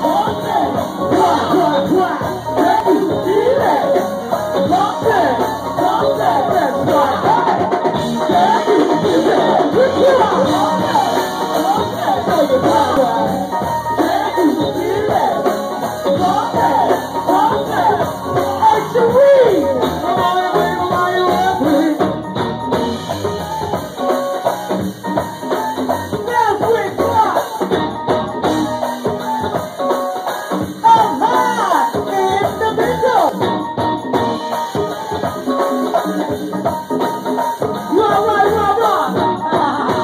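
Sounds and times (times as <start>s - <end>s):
live band music: 0.0s - 40.0s
women singing: 4.8s - 20.6s, 38.0s - 40.0s.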